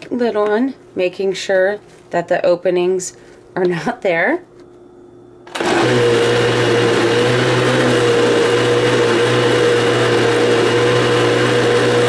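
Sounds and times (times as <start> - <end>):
blender running: 5.5 - 12.0.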